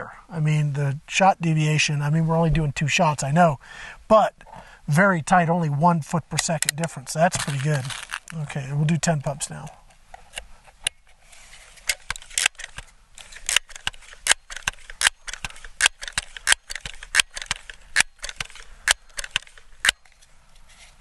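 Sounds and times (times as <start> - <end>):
air pistol pump lever clicks: 11.8 - 20.2.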